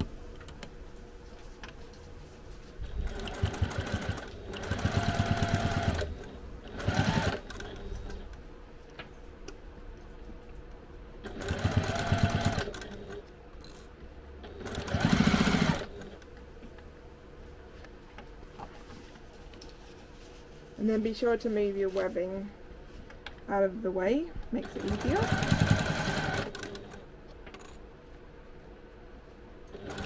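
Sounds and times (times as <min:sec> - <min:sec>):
sewing machine stitching: 0:02.8 - 0:08.2, 0:11.2 - 0:13.2, 0:14.4 - 0:16.2, 0:24.6 - 0:27.0, 0:29.7 - 0:30.0.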